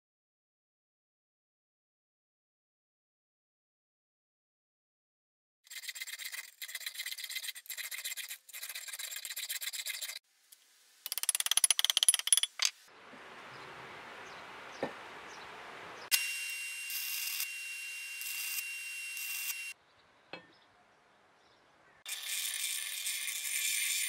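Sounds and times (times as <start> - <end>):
file rasping on steel: 22.1 - 24.0.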